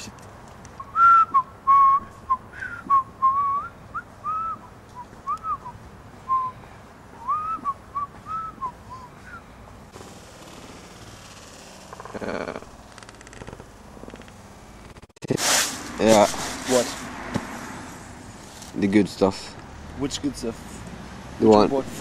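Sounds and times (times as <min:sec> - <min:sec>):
person whistling: 0:00.8 - 0:06.6, 0:07.2 - 0:09.4.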